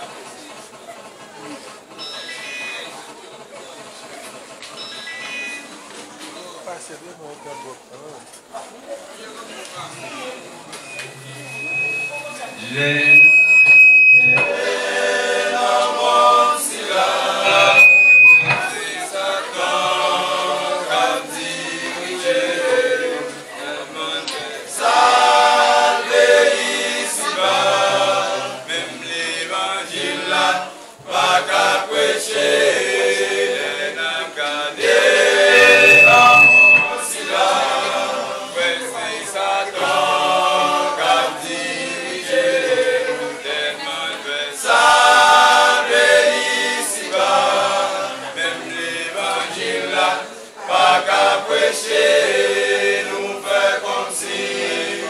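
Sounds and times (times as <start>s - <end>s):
men's choir singing a cappella: 12.6s - 55.0s.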